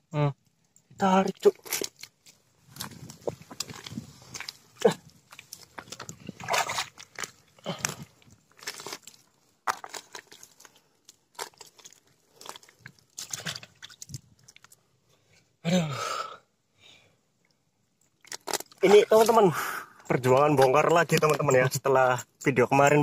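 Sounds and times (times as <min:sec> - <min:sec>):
hands squelching through mud: 0:01.0 - 0:14.8, 0:18.2 - 0:19.6.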